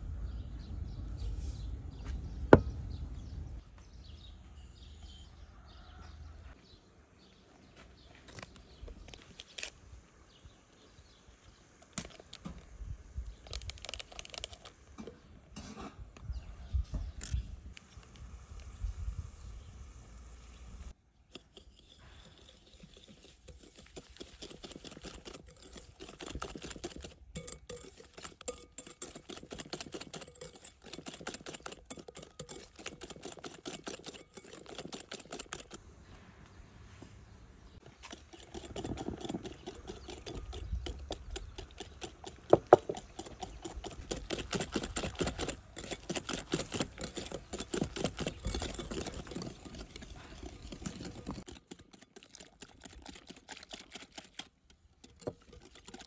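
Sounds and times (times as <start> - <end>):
whisk clicking against glass bowl: 22.4 - 35.8, 38.1 - 56.0.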